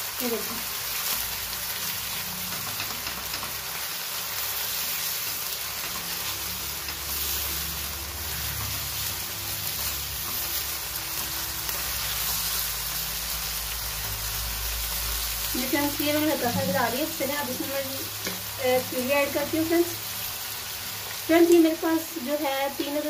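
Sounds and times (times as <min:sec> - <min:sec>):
meat and onions sizzling in oil: 0:00.0 - 0:23.0
spatula stirring in pan: 0:01.1 - 0:15.3.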